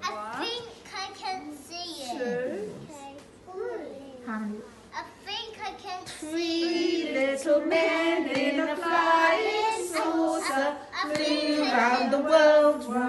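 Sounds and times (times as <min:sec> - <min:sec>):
woman and children singing: 0:06.1 - 0:13.0.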